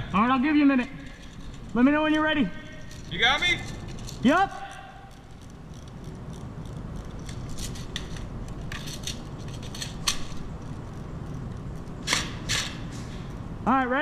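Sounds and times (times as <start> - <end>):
rifle clicks and rattles: 2.8 - 12.8.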